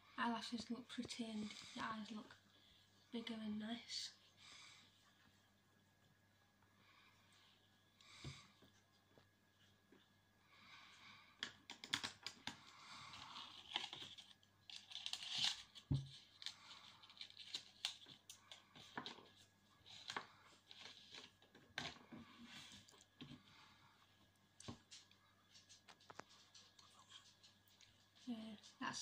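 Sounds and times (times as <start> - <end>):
packaging rustling: 13.1 - 21.8.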